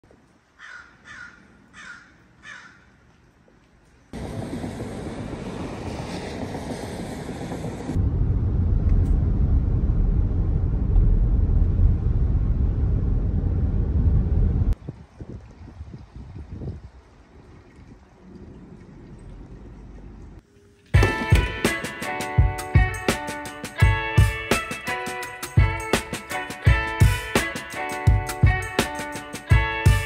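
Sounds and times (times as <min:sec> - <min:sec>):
bird calling: 0:00.6 - 0:03.1
car driving on wet road: 0:04.2 - 0:14.8.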